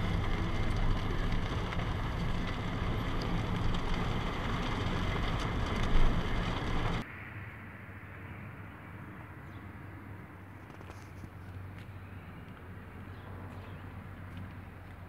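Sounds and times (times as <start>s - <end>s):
rain hissing on car: 0.0s - 7.0s
low hum: 0.0s - 14.9s
quiet outdoor ambience: 0.0s - 15.0s.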